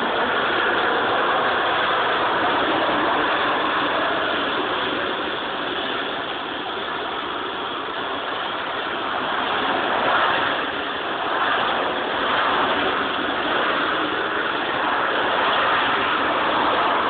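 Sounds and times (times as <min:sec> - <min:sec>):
jet engine roaring: 0:00.0 - 0:17.0.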